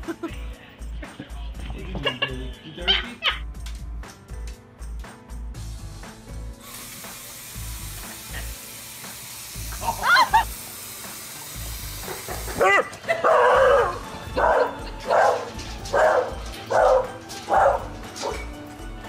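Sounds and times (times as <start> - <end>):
background music beat: 0.0 - 19.0
steady hiss: 5.6 - 12.6
dog yowling: 9.9 - 10.4, 12.6 - 18.4.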